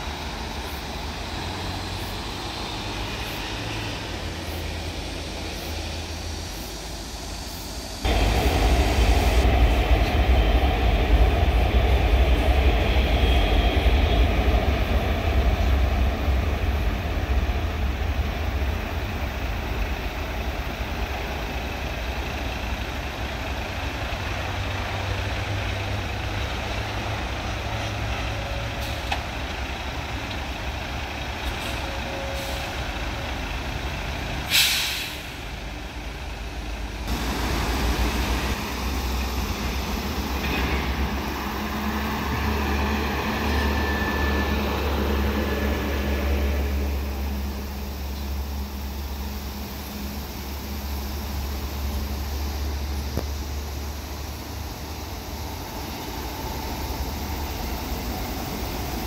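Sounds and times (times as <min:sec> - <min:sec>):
electric train on viaduct: 0:00.0 - 0:59.0
road traffic rumble: 0:00.0 - 0:59.0
air-brake hiss: 0:31.4 - 0:32.9, 0:34.4 - 0:35.6.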